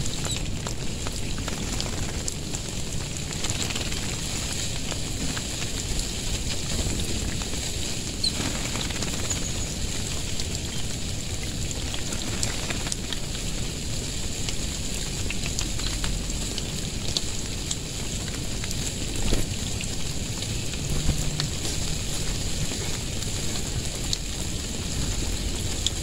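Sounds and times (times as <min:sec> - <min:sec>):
water spray pattering on ground: 0:00.0 - 0:26.0
sharp drip ticks: 0:08.2 - 0:26.0.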